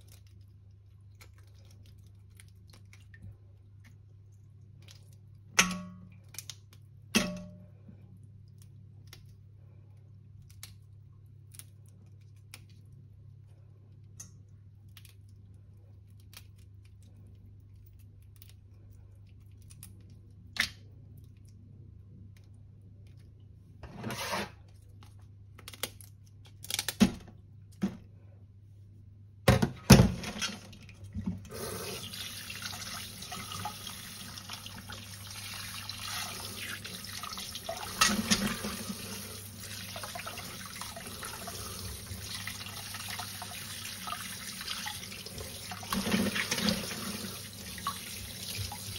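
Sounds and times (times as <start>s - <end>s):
running water: 30.2s - 48.9s.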